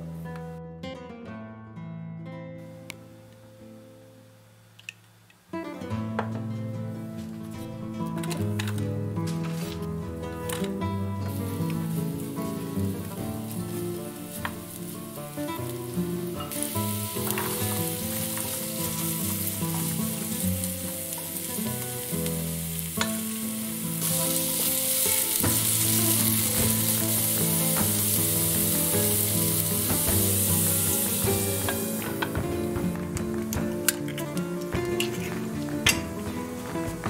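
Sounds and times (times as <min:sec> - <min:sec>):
vegetables sizzling in oil: 0:11.3 - 0:37.0.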